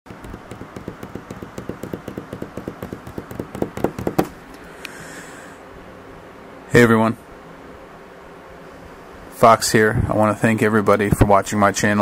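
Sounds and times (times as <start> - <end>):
rapid tapping: 0.0 - 4.4
sharp knocks: 0.0 - 4.4.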